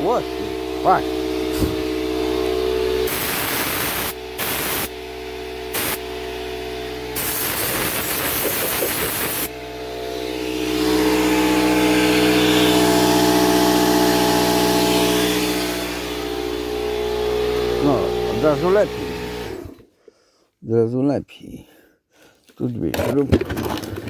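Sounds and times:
air compressor humming: 0.0s - 19.9s
air blow gun hissing: 3.0s - 4.9s, 5.7s - 6.0s, 7.2s - 9.5s.

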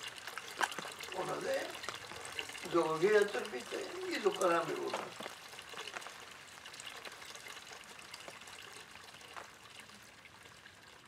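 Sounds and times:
water trickling and splashing: 0.0s - 11.0s.

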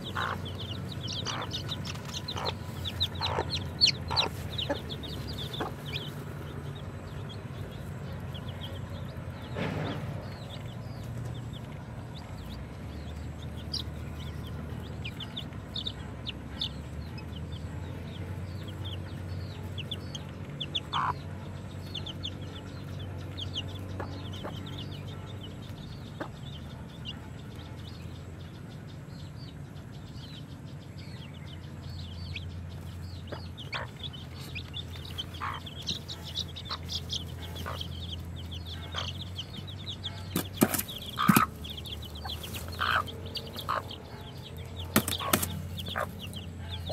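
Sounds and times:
chicks peeping: 0.0s - 46.9s
sharp knocks: 44.9s - 45.6s.

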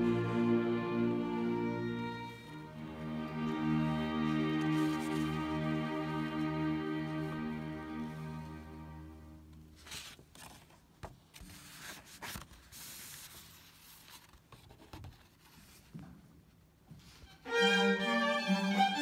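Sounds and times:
string orchestra playing: 0.0s - 9.8s, 17.2s - 19.0s
faint rustles and knocks: 9.7s - 17.4s.

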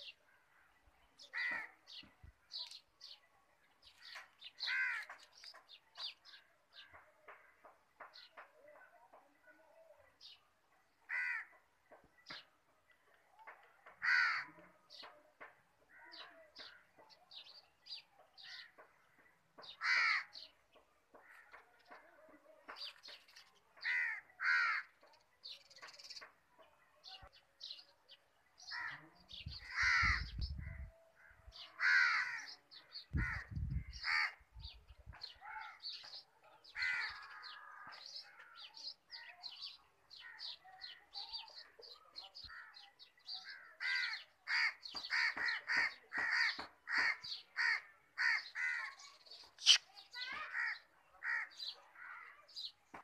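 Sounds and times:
small birds chirping: 0.0s - 53.0s
crows cawing: 1.3s - 1.8s, 4.6s - 5.2s, 11.1s - 11.6s, 14.0s - 14.6s, 19.8s - 20.4s, 23.8s - 24.9s, 29.7s - 30.3s, 31.2s - 32.6s, 33.2s - 34.4s, 36.8s - 38.0s, 43.4s - 49.0s, 49.6s - 52.4s.

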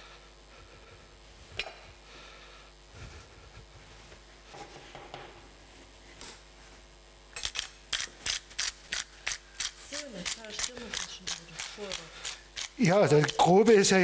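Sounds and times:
pepper mill grinding: 7.4s - 13.9s.

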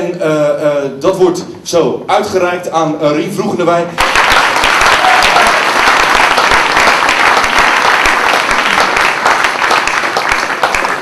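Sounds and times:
large audience applauding: 4.0s - 11.0s.

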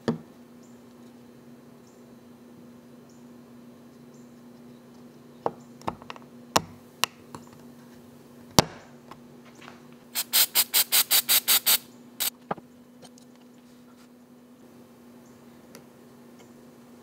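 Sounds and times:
faint steady hum: 0.0s - 17.0s
quick sharp strokes: 10.2s - 12.3s.

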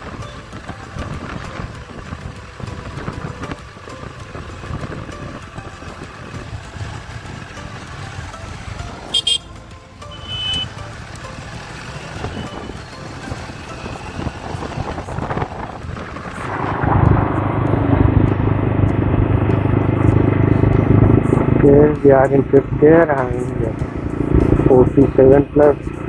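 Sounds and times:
motorcycle road noise: 0.0s - 26.0s
vehicle horn honking: 9.1s - 10.8s, 12.0s - 12.8s
wind rush: 11.5s - 21.6s.

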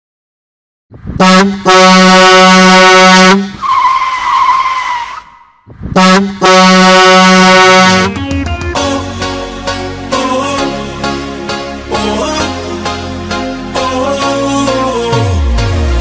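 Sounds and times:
loud vehicle horn blasts: 1.2s - 3.6s, 6.0s - 8.2s
tyre squeal: 3.6s - 5.6s.

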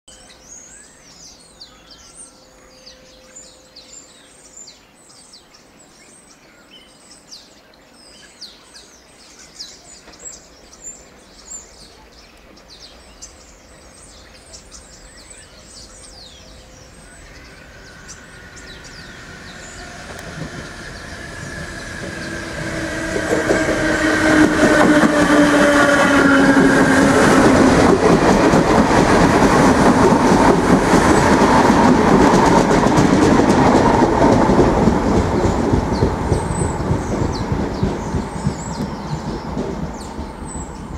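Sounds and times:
birds chirping: 0.1s - 40.9s
train passing rumble: 10.0s - 40.9s
electric train whine: 13.2s - 40.9s.

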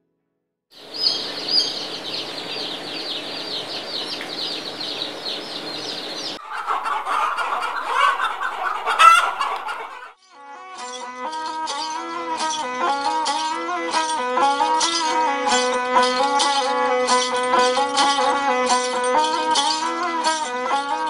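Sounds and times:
chickens clucking: 0.8s - 10.1s
chicks peeping: 0.8s - 10.1s.

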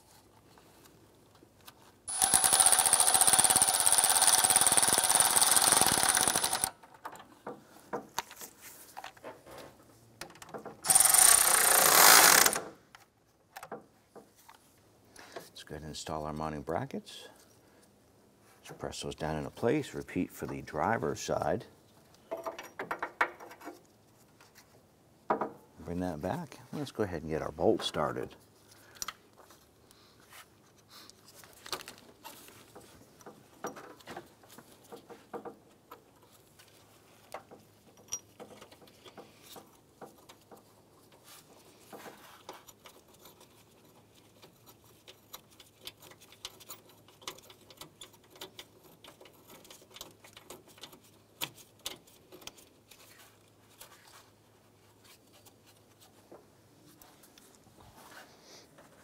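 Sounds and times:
metal bracket clicks and scrapes: 41.9s - 54.2s.

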